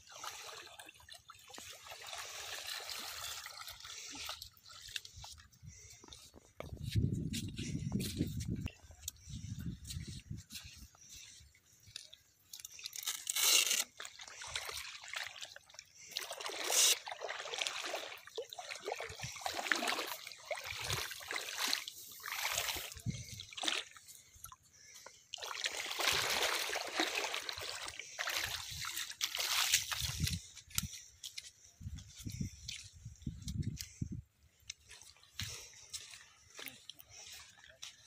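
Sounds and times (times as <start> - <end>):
water sloshing: 0.0 - 6.6, 11.0 - 30.5.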